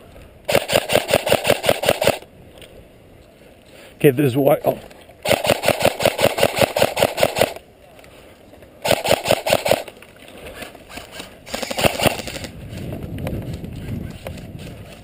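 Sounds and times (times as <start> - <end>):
airsoft rifle firing full auto: 0.5 - 2.2, 5.2 - 7.6, 8.8 - 9.9, 11.5 - 12.5.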